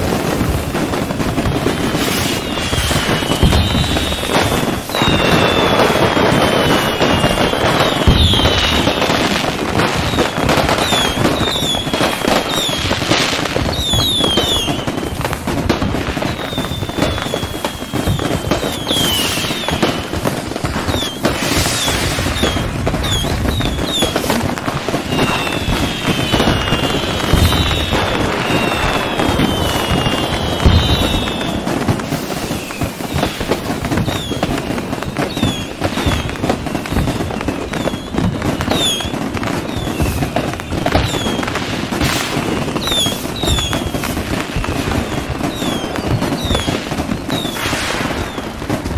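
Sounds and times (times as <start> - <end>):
deep firework booms: 0.0 - 48.9
fireworks crackling and popping: 0.0 - 48.9
whistles gliding down in pitch: 2.3 - 4.3, 4.9 - 9.0, 21.8 - 24.2, 25.0 - 31.6.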